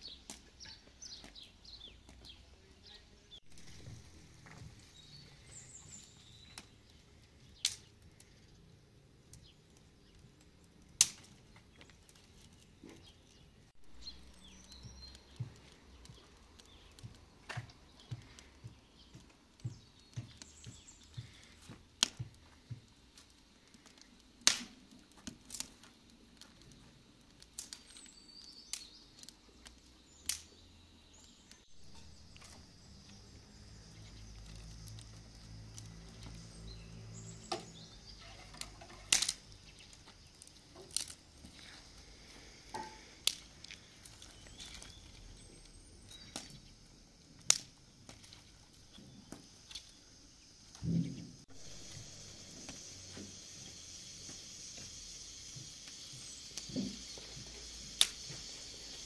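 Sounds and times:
dry branches snapping: 7.6 - 8.3, 10.5 - 13.4, 19.1 - 22.5, 23.1 - 26.8, 27.4 - 30.6, 31.2 - 37.9, 38.5 - 46.6, 47.4 - 50.0, 57.9 - 58.4.

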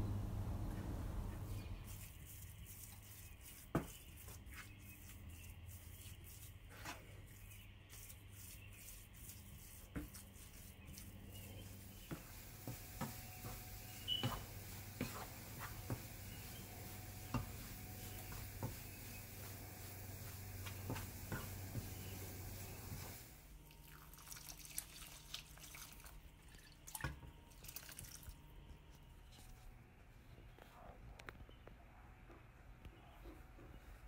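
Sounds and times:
steady low hum: 0.0 - 23.7
wooden spatula scraping pan: 1.6 - 23.2
faint frying sizzle: 10.8 - 23.5
spatula tapping pan: 12.0 - 19.4.

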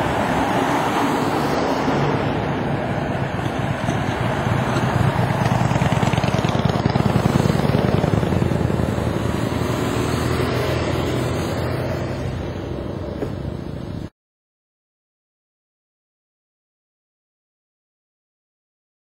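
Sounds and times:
motorcycles passing: 0.0 - 14.1.

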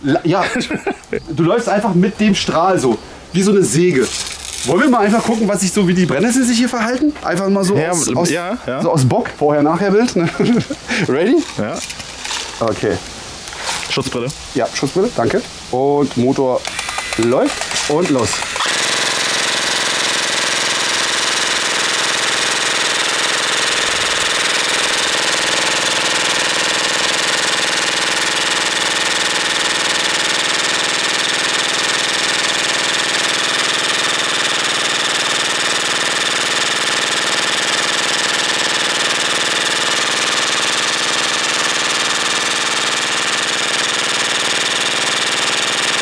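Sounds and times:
airsoft gun firing full-auto: 16.7 - 46.0.

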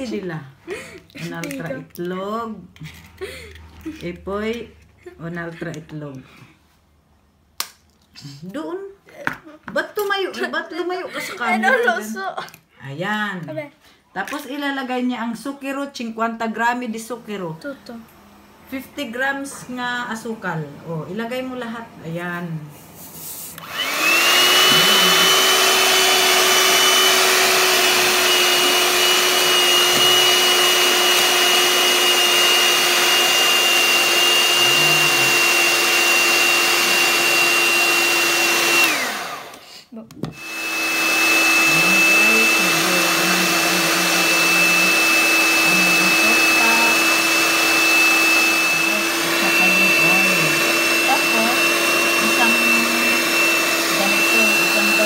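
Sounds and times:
electric hand mixer whining: 23.6 - 55.0.

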